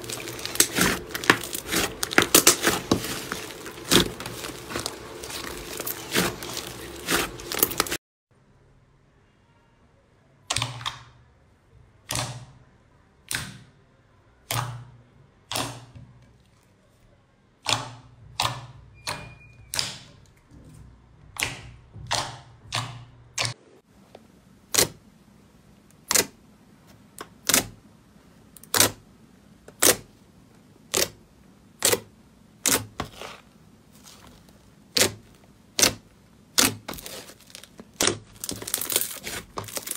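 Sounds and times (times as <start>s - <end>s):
slime crackling when kneaded: 0.0s - 8.0s, 29.7s - 30.2s, 30.8s - 39.9s.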